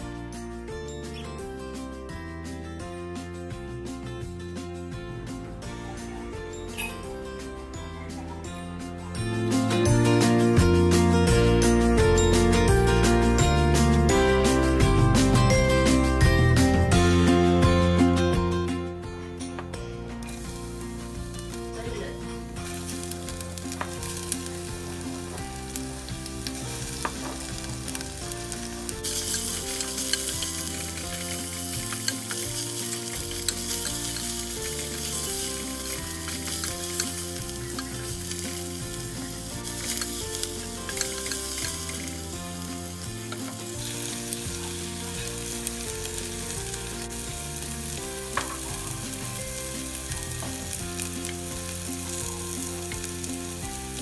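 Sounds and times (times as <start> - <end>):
garlic sizzling in oil: 20.2 - 54.0.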